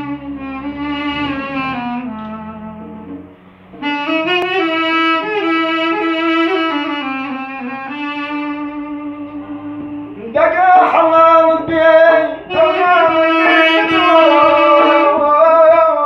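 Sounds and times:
wooden wind instrument melody: 0:00.0 - 0:16.0
low steady drone tone: 0:07.6 - 0:15.3.

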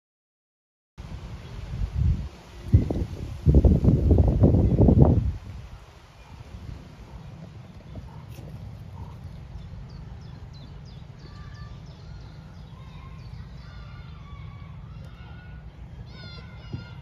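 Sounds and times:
wind rumbling on microphone: 0:01.0 - 0:17.0
small birds chirping: 0:04.1 - 0:17.0.

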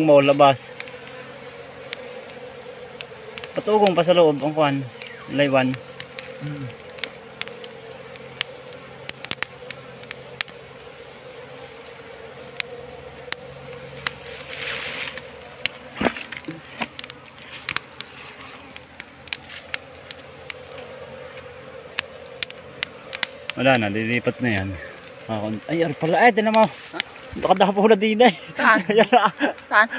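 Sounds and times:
bees buzzing: 0:00.0 - 0:29.9
rustle: 0:00.0 - 0:29.9
sharp clicks: 0:21.9 - 0:23.8.

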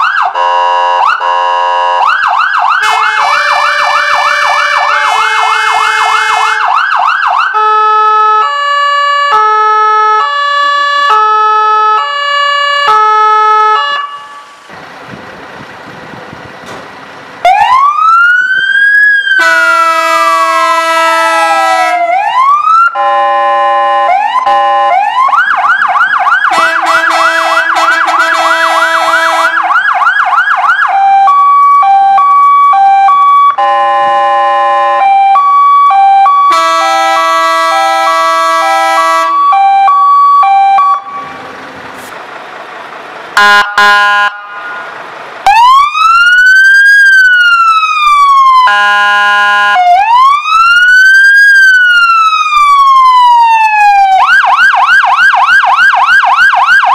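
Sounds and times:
electronic siren yelp: 0:00.0 - 0:14.6, 0:17.4 - 0:41.4, 0:43.4 - 0:44.8, 0:45.5 - 0:56.9
two-tone siren: 0:00.0 - 0:14.6, 0:17.4 - 0:41.4, 0:43.4 - 0:56.9
siren wail rising and falling: 0:00.0 - 0:14.7, 0:17.4 - 0:41.9, 0:43.4 - 0:56.9
short siren tone blasts: 0:00.1 - 0:14.6, 0:17.4 - 0:41.5, 0:43.4 - 0:47.4, 0:48.0 - 0:50.4.

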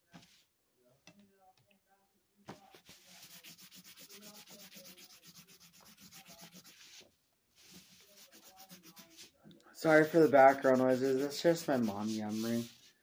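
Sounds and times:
pencil scratching on paper: 0:02.7 - 0:13.0.

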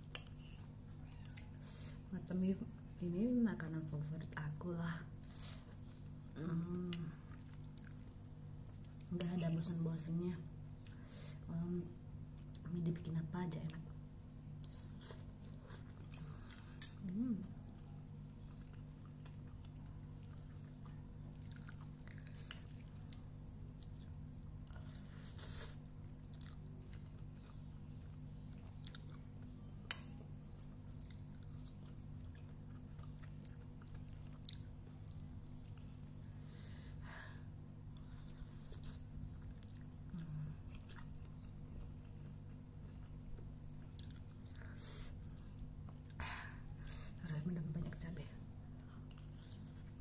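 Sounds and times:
person chewing noodles: 0:07.2 - 0:09.1, 0:14.6 - 0:46.9, 0:48.7 - 0:50.0.

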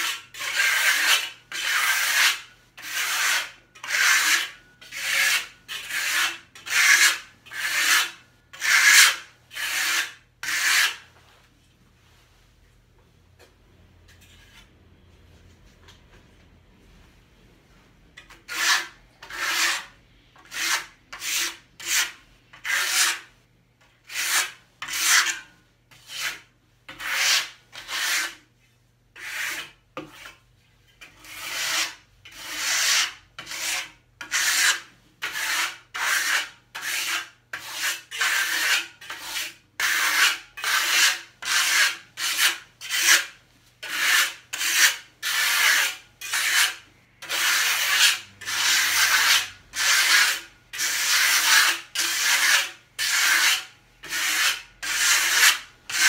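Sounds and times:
gloved hand rubbing mortar surface: 0:37.8 - 0:56.0.

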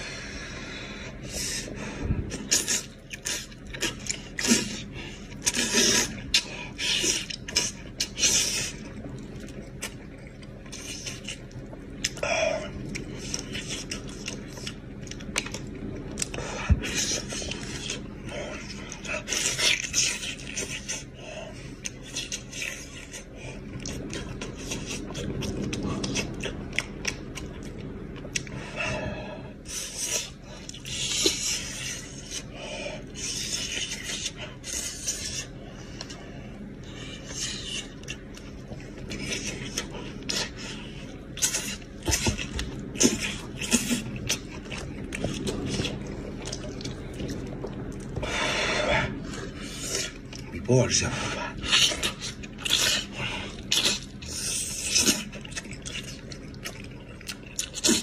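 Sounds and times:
sucking and slurping: 0:00.0 - 0:58.0
person chewing: 0:01.2 - 0:28.8, 0:29.5 - 0:50.5, 0:51.5 - 0:58.0.

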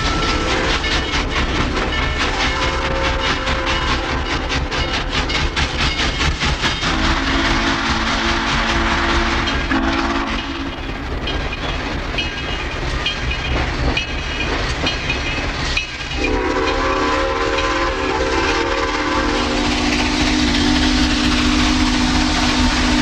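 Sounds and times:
steam whistle chime: 0:00.0 - 0:00.9, 0:06.8 - 0:10.7, 0:16.2 - 0:23.0
locomotive bell ringing: 0:00.0 - 0:07.0, 0:09.4 - 0:20.3.

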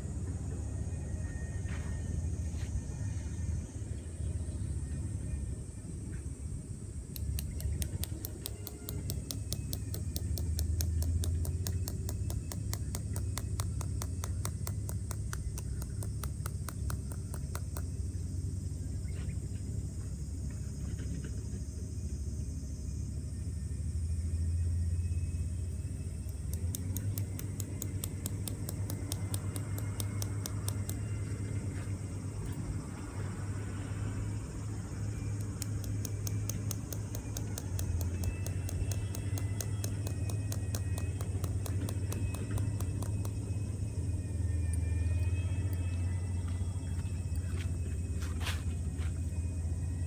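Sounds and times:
fast even ticking: 0:07.2 - 0:17.9, 0:26.3 - 0:31.2, 0:35.3 - 0:43.6.

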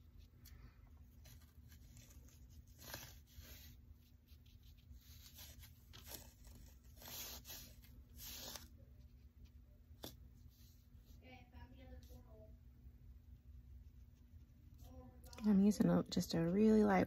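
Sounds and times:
low steady hum: 0:00.0 - 0:17.0
paintbrush swishing on paper: 0:01.3 - 0:09.2.

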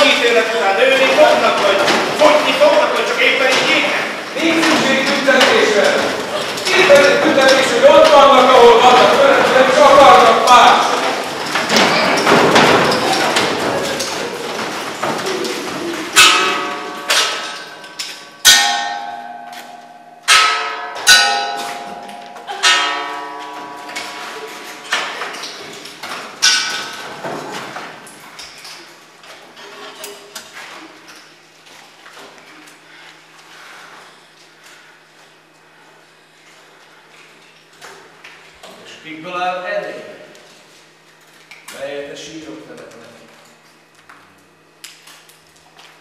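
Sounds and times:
loud struck ringing notes: 0:16.2 - 0:17.8, 0:18.4 - 0:25.0.

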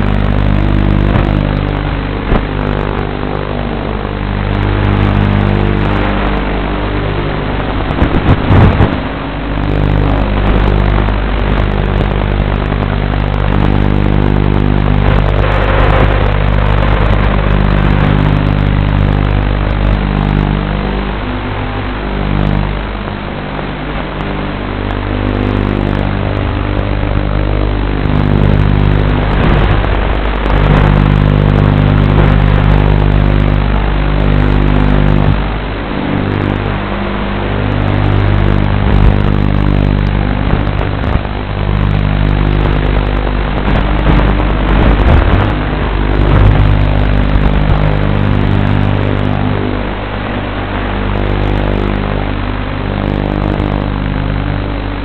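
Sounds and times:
quadcopter motors buzzing: 0:00.0 - 0:55.0.

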